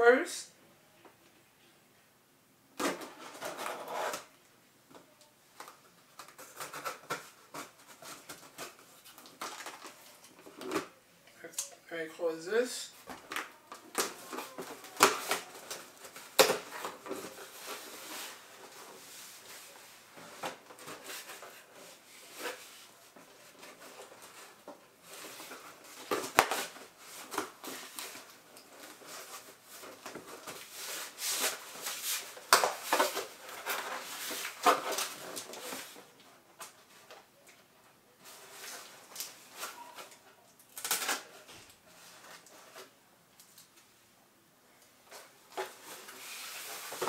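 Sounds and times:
cardboard scraping and rustling: 2.8 - 4.3, 45.1 - 47.0.

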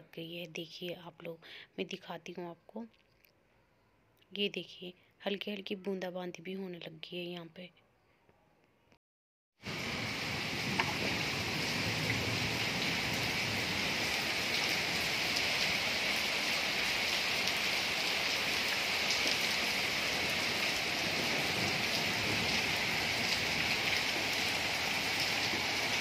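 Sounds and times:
light rain on stone tiles: 9.6 - 26.0.

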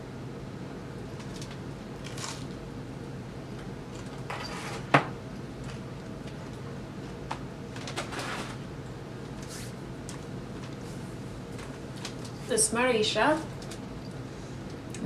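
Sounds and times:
steady low hum: 0.0 - 15.0
rustling handling noises: 9.2 - 12.6.

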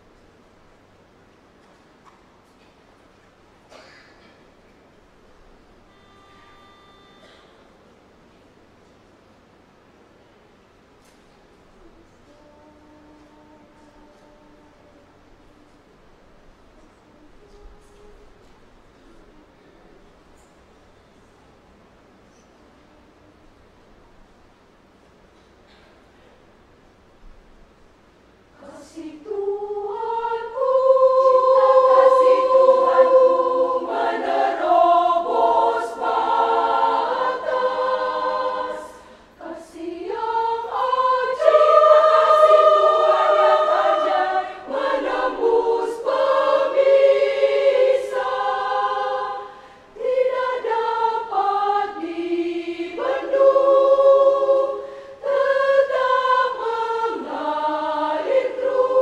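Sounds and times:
women's choir singing: 28.5 - 59.0.

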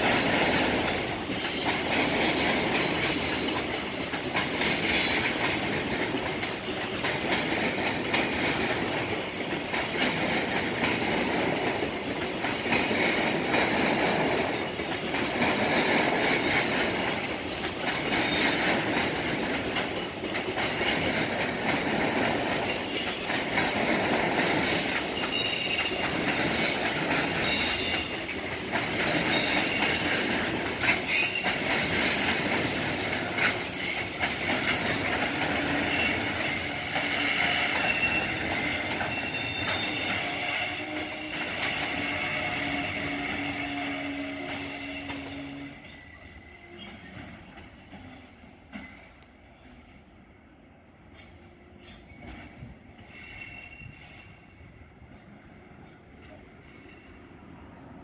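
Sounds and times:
train wheels rumbling on rail: 0.0 - 58.0
high wheel squeals: 9.0 - 10.5, 12.0 - 13.5, 18.0 - 21.1, 24.4 - 48.7, 53.0 - 54.6.

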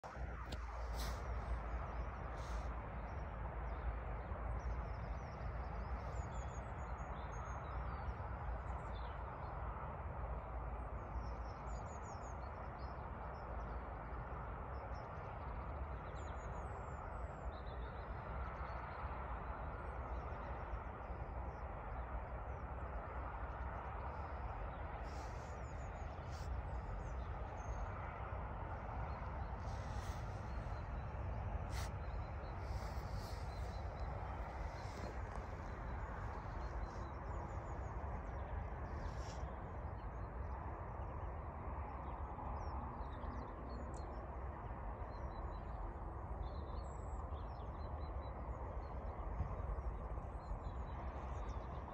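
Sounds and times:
small birds chirping: 23.6 - 40.5
low rumble: 23.8 - 41.4.

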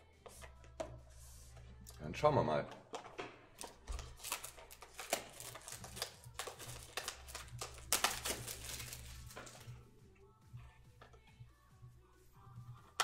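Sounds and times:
foil wrapper crinkling: 4.0 - 9.7.

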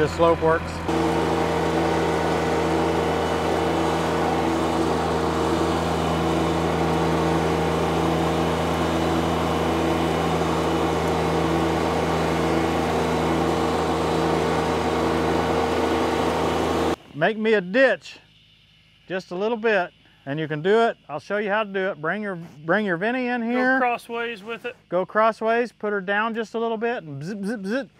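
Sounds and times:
compact tractor engine running: 0.0 - 17.0.

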